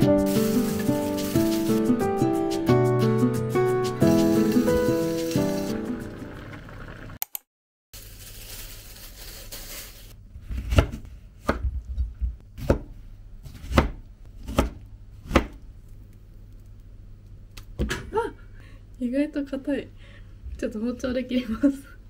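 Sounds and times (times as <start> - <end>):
knife chopping on cutting board: 10.5 - 11.7, 12.6 - 15.6.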